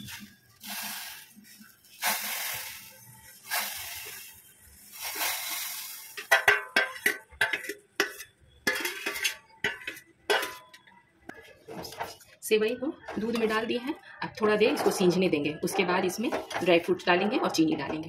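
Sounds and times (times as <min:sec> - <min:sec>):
spoon scraping steel plate: 0:05.1 - 0:10.8.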